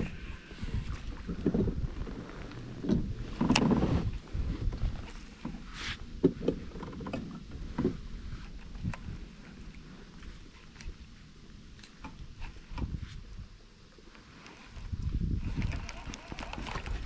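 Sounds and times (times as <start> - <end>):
wind rumble on microphone: 0.0 - 13.8, 14.6 - 17.0
water lapping: 15.5 - 17.0.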